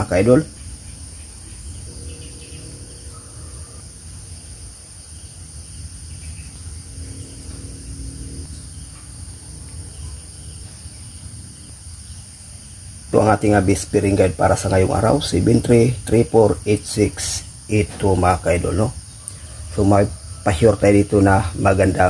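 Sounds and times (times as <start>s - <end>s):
low rumble: 1.7s - 11.6s
high-pitched drone: 1.9s - 4.3s.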